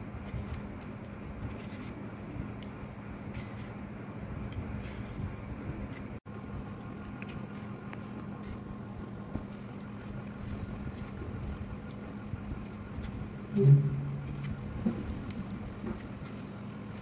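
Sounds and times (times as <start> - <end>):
faint hum: 0.0 - 17.0
low background rumble: 0.0 - 17.0
short low-pitched sound: 13.6 - 14.6.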